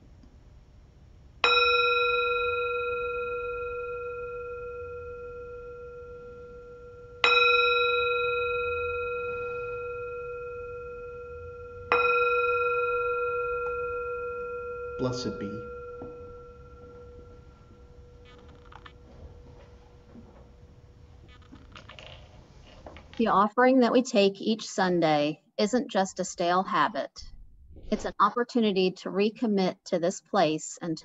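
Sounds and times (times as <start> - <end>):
metal singing bowl ringing: 1.4 - 21.1.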